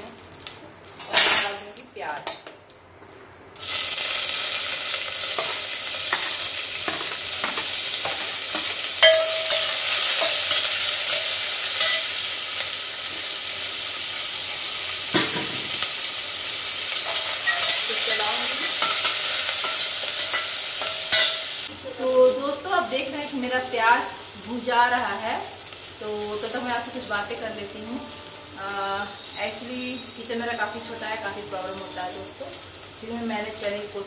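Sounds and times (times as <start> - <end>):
onion sizzling in oil: 0.0 - 34.0.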